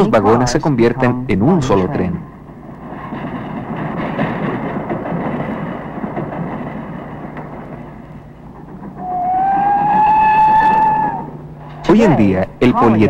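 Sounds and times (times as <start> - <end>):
freight cars rolling: 2.4 - 12.4
high whistle-like tone: 9.0 - 11.4.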